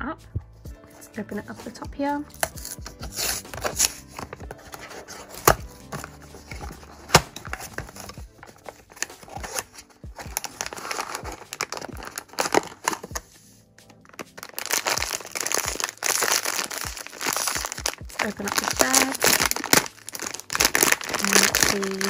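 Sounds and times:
plastic sleeve crinkling: 1.6s - 22.0s
box clicking and tapping: 2.4s - 13.2s.

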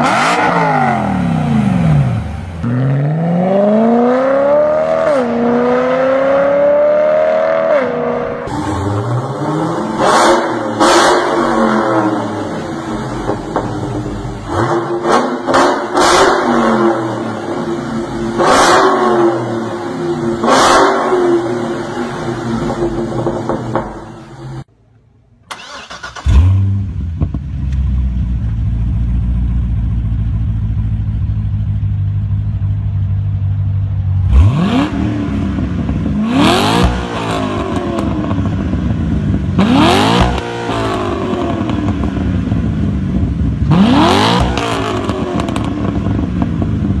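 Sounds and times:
car engine revving: 0.0s - 24.7s, 34.2s - 47.0s
car engine starting and idling: 8.3s - 47.0s.

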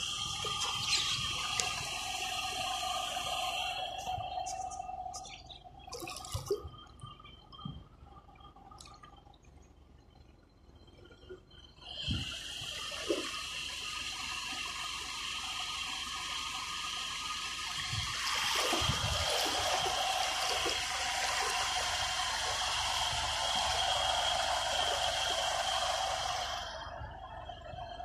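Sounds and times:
floodwater rushing and sloshing: 17.8s - 26.7s.

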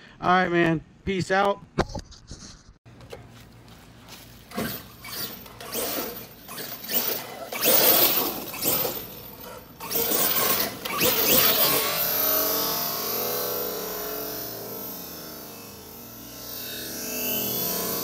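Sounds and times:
high motor whine: 4.1s - 18.0s.

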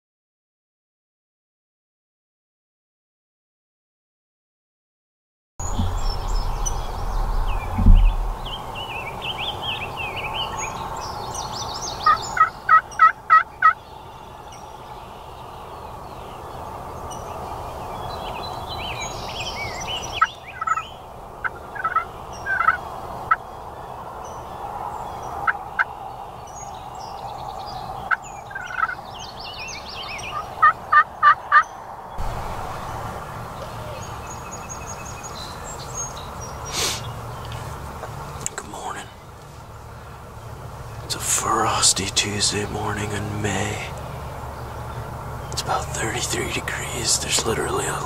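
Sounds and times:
steady background hiss: 5.6s - 31.2s, 31.8s - 48.0s
small songbirds chirping: 5.6s - 48.0s
wild turkey calling: 11.8s - 17.4s, 18.3s - 48.0s.

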